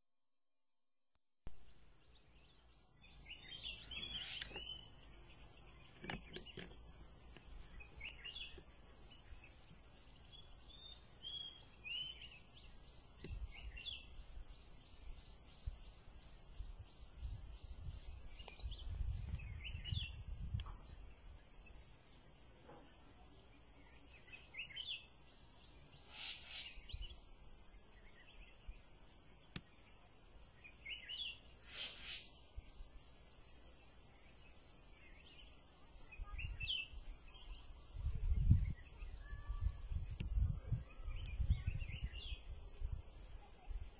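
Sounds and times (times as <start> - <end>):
insect chorus trilling: 1.6 - 43.9
short chirping calls: 3.0 - 6.8, 26.0 - 27.2, 30.8 - 32.4.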